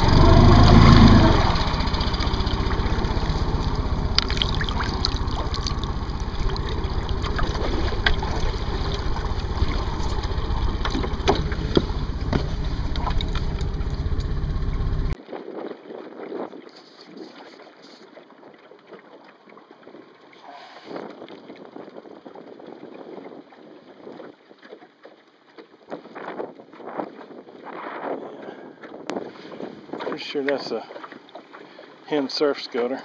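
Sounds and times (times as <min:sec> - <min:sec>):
outboard motor idling: 0:00.0 - 0:15.2
water splashing and dripping: 0:00.6 - 0:14.4.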